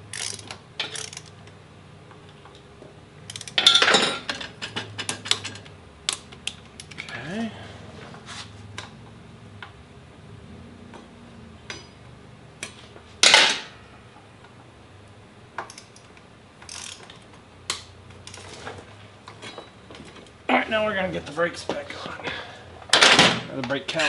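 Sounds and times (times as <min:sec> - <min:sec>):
tools clattering: 0:00.1 - 0:01.3, 0:03.3 - 0:05.7, 0:12.6 - 0:13.8, 0:18.3 - 0:20.2.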